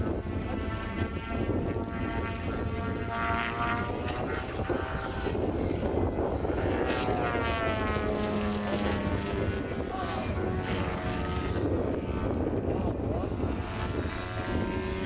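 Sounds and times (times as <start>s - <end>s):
model plane engine and propeller: 0.0s - 15.0s.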